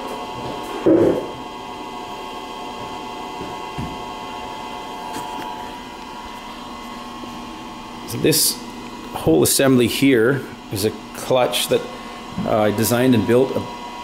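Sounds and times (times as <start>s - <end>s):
steady electrical hum: 0.0s - 14.0s
objects being set down: 0.8s - 1.3s.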